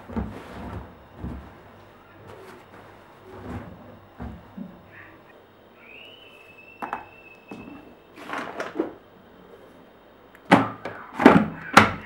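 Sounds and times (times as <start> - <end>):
clothes rustling: 0.0 - 5.3.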